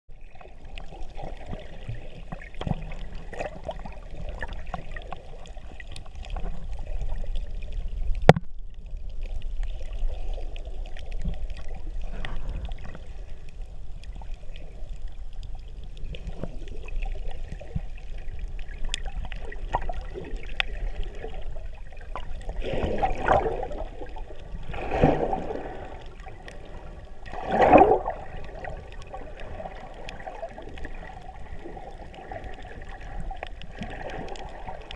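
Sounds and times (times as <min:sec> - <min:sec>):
muffled underwater rumble: 0:00.1 - 0:34.9
rushing surges of water: 0:09.2 - 0:34.9
faint clicks: 0:18.4 - 0:21.5, 0:32.5 - 0:34.9.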